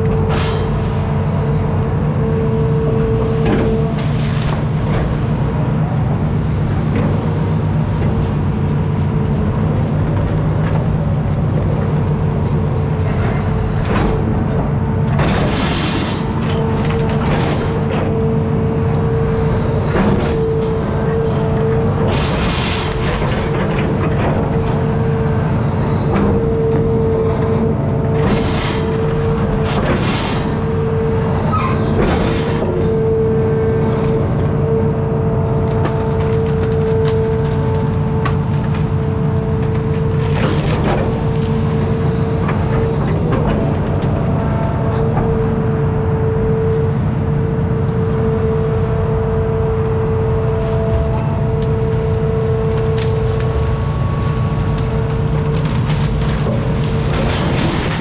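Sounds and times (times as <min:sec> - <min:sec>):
knocks and clanks: 0:00.0 - 0:01.0, 0:13.0 - 0:18.4, 0:19.2 - 0:33.0, 0:39.6 - 0:45.7, 0:52.6 - 0:58.0
excavator diesel engine rumble: 0:00.0 - 0:58.0
hydraulic hum: 0:00.0 - 0:58.0.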